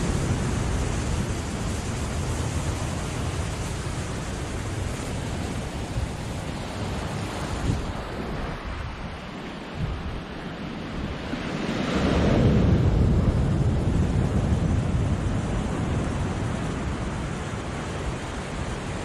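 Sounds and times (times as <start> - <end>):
surf breaking on rocks: 0.0 - 10.0
wind buffeting microphone: 0.0 - 19.0.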